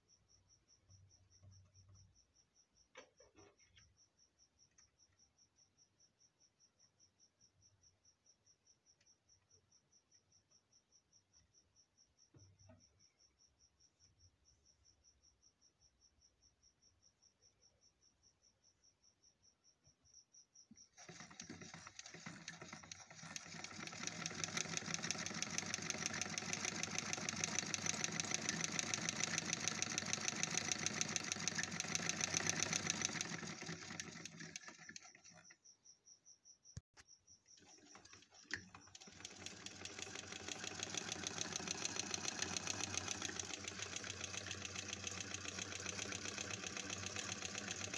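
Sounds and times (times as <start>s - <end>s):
cricket chirping: 0.0s - 21.0s, 25.7s - 47.9s
sewing machine clattering: 20.9s - 35.6s, 37.6s - 47.9s.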